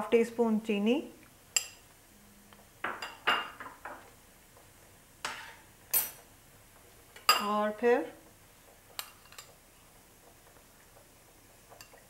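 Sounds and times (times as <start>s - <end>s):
utensils and dishes clinking: 5.3s - 6.2s.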